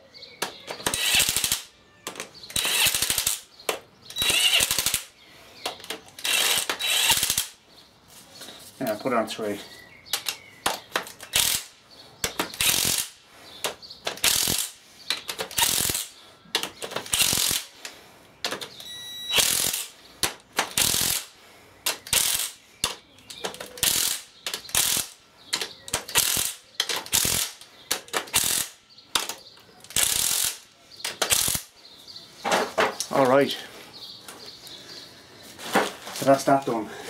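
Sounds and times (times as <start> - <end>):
drill clutch ratcheting clicks: 0.7 - 3.4, 4.1 - 5.1, 5.7 - 7.5, 12.6 - 13.1, 14.0 - 17.7, 18.5 - 19.9, 21.9 - 22.5, 23.4 - 29.3, 29.9 - 31.7
cordless drill bursts: 0.8 - 1.6, 2.5 - 3.4, 4.2 - 5.0, 6.2 - 7.5, 18.8 - 19.9.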